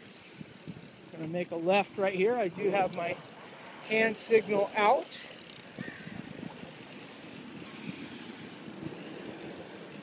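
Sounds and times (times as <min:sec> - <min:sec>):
wind buffeting microphone: 0:00.0 - 0:03.3, 0:05.6 - 0:10.0
faint road noise: 0:00.0 - 0:10.0.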